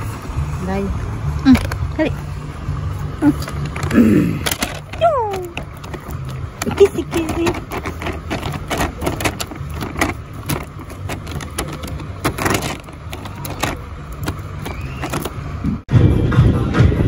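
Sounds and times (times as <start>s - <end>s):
plastic bag crinkling: 3.4s - 15.4s.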